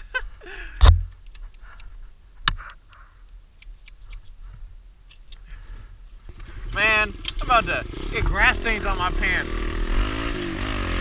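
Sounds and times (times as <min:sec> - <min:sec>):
heavy thump: 0:00.8 - 0:01.1.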